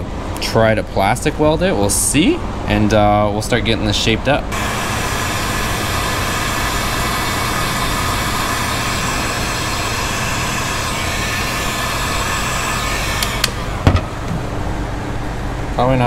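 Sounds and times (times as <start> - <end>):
heat gun blowing: 4.5 - 14.6.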